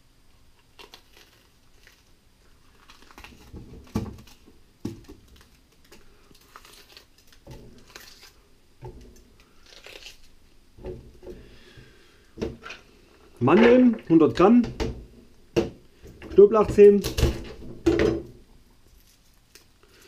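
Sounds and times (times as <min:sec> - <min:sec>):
pepper crunching and tearing: 0:00.6 - 0:08.5, 0:09.2 - 0:10.6, 0:18.9 - 0:20.0.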